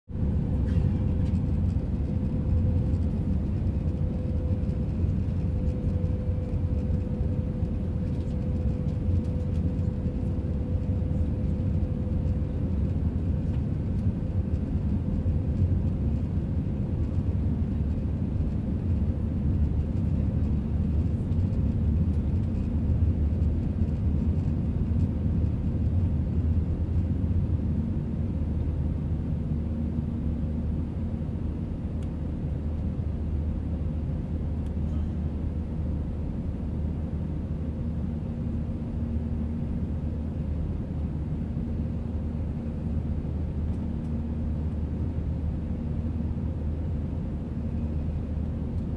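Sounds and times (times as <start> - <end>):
low jet engine drone: 0.1 - 48.9
faint humming tone: 0.2 - 48.9.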